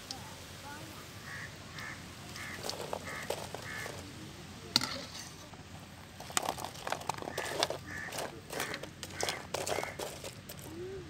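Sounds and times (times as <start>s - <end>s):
bird calling: 1.2s - 4.1s, 7.1s - 11.0s.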